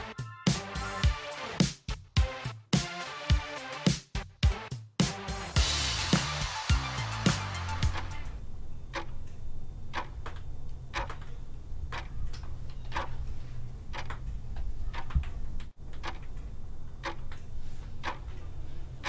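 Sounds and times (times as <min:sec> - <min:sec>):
clock ticking: 0:07.7 - 0:08.3, 0:08.9 - 0:19.0.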